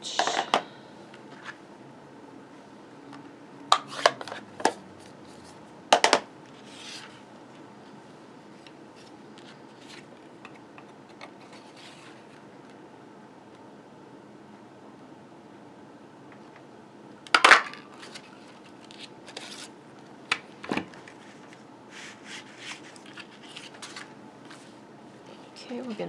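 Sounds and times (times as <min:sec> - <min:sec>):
cardstock rustling: 0:22.0 - 0:24.7.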